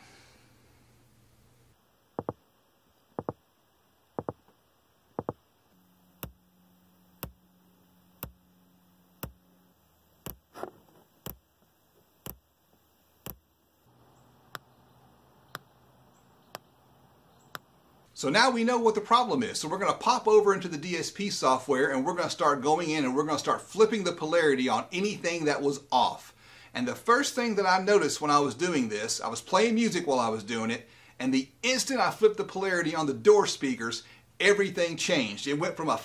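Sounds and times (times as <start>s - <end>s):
faint steady hum: 0.0s - 36.0s
speaker test pulse clicks: 2.2s - 2.4s, 3.2s - 3.4s, 4.2s - 4.6s, 5.2s - 5.4s, 6.2s - 6.5s, 7.2s - 7.4s, 8.2s - 8.4s, 9.2s - 9.4s, 10.2s - 10.5s, 11.2s - 11.4s, 12.2s - 12.4s, 13.2s - 13.4s.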